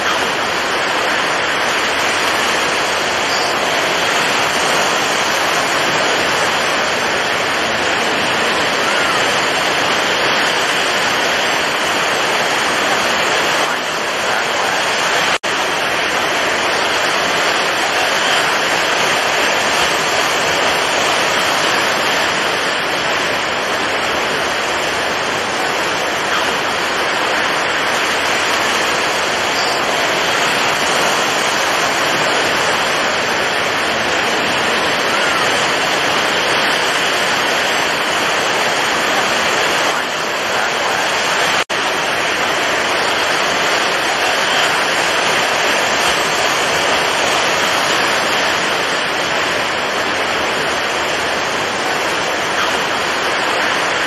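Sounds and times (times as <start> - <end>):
stormy waves breaking: 0.0 - 54.0.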